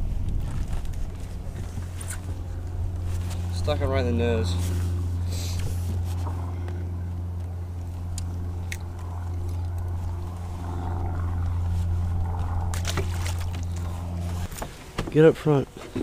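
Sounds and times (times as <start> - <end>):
electric trolling motor humming: 0.0 - 15.0.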